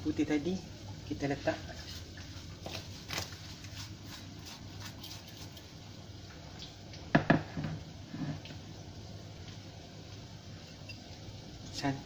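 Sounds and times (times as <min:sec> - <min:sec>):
small drips and ticks: 0:05.0 - 0:07.1, 0:08.4 - 0:11.9
sharp knocks on a wok: 0:07.1 - 0:07.8.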